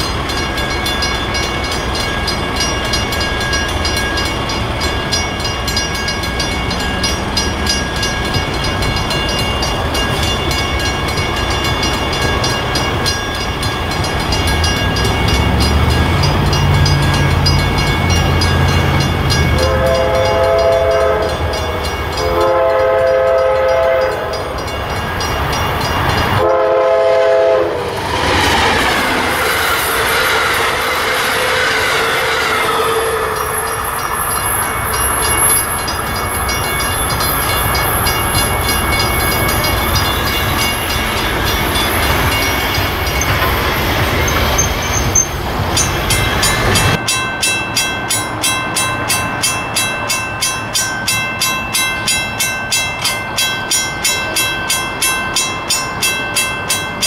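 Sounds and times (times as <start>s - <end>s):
crossing bell ringing: 0.0s - 57.0s
diesel train rumble: 0.0s - 57.0s
train wheels clattering on rails: 0.0s - 57.0s
train horn blasts: 19.5s - 24.5s, 26.4s - 28.0s, 29.9s - 33.9s.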